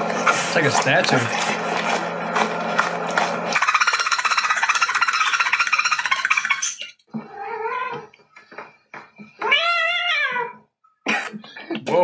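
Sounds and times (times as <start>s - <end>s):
cat meowing: 9.4s - 10.6s.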